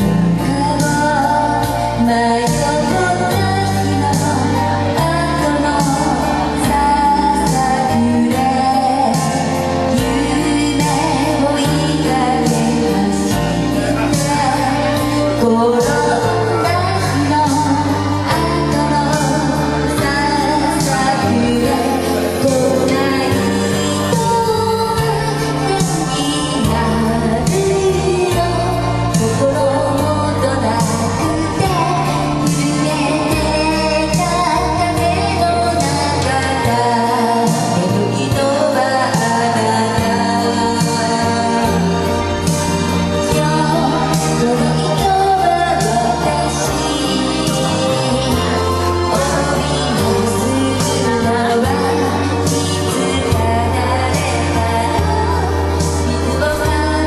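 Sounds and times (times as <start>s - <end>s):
karaoke backing track: 0.0s - 57.0s
woman singing into microphone: 0.0s - 57.0s.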